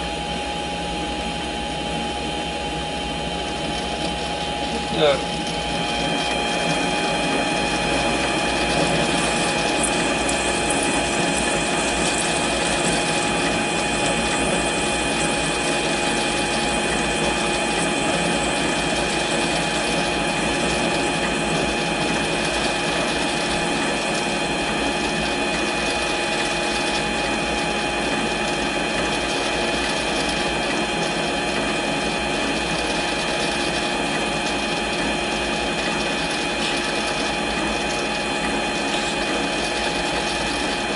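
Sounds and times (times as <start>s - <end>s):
lathe whining: 0.0s - 40.9s.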